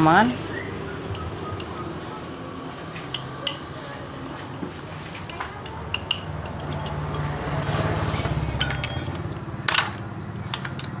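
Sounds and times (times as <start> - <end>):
passing traffic rumble: 0.0 - 11.0
metallic clicks and clinks: 1.1 - 3.7, 5.2 - 9.9, 10.5 - 11.0.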